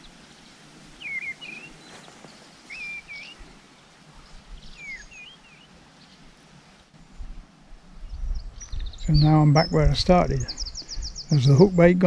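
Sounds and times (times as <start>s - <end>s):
faint outdoor background noise: 0.0s - 12.0s
songbird whistling: 1.0s - 2.0s, 2.7s - 3.4s, 4.7s - 5.7s.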